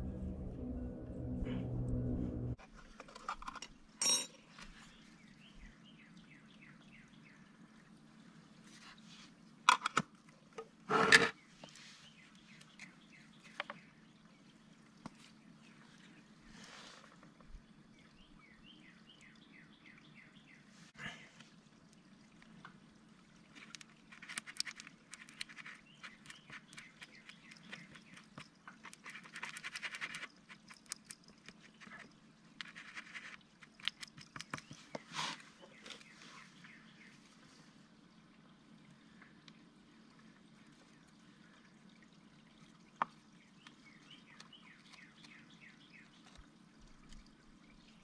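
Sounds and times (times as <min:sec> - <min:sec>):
steady low hum: 0:00.0 - 0:02.6
bird chirping: 0:25.2 - 0:31.2, 0:43.4 - 0:46.4.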